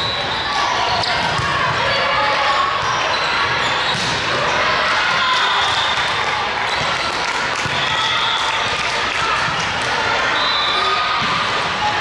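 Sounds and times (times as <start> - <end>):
volleyballs struck and bouncing: 3.9 - 4.5.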